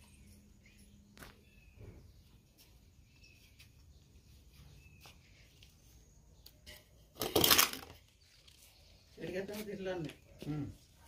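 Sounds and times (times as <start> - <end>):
faint bird chirps: 0.0 - 7.1.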